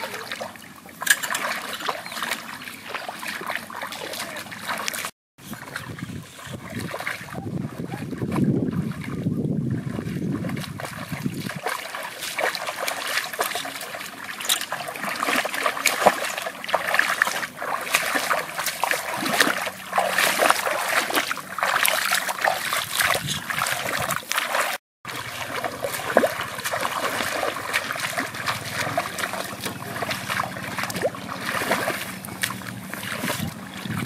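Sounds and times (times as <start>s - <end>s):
metal fork pushed through water: 0.0s - 7.2s, 9.8s - 34.0s
feet wading through muddy water: 0.0s - 34.0s
wind rumble on microphone: 5.4s - 11.7s, 22.7s - 24.3s, 25.4s - 34.0s.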